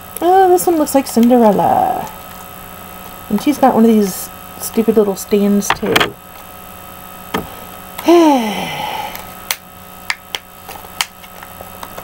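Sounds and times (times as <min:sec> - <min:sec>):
woman sighing: 0:08.0 - 0:09.3.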